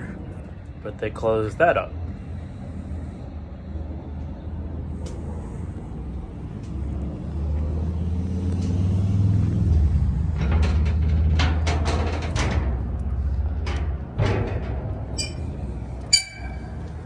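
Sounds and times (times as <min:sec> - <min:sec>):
low engine rumble: 0:00.0 - 0:17.0
sharp clicks and knocks: 0:09.6 - 0:17.0.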